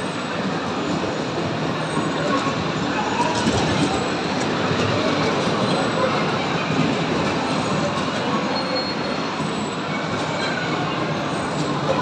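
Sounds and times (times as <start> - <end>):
bumper cars rumbling and clattering: 0.0 - 12.0
faint high squeal: 8.5 - 10.7.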